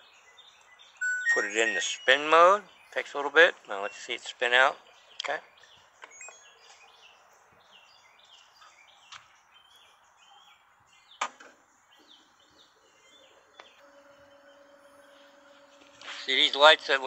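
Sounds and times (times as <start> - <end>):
small birds chirping: 0.0 - 17.0
washing machine spin hum: 13.8 - 17.0.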